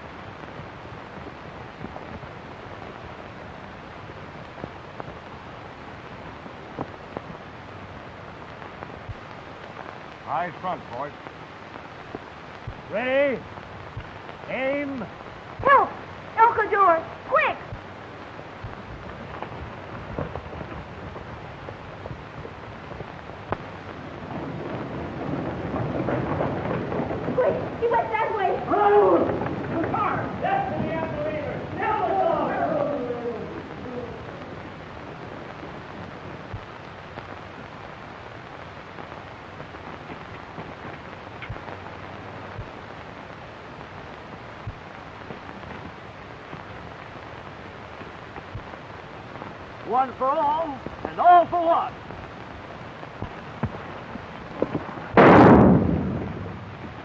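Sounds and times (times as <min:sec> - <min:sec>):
old film crackling hiss: 0:00.0 - 0:57.0
soft low pops: 0:00.0 - 0:57.0
sharp crack: 0:17.3 - 0:37.8, 0:39.6 - 0:42.8, 0:47.9 - 0:57.0.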